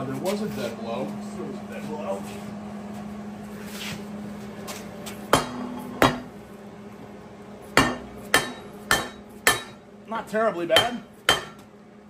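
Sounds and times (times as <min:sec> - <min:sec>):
hammer knocks on metal housing: 0:05.4 - 0:06.3, 0:07.8 - 0:09.8, 0:10.7 - 0:11.7.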